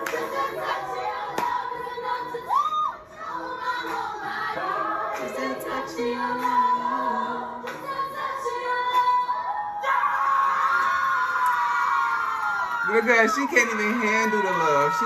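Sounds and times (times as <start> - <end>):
backing music: 0.0 - 9.8
woman singing: 0.0 - 10.3.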